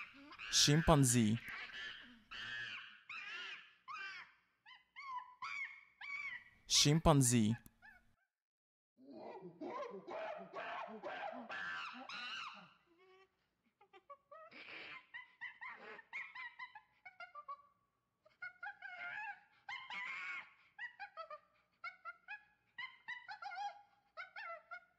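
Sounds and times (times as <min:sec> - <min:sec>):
chimpanzees calling: 0:00.0 - 0:06.4, 0:09.2 - 0:12.8.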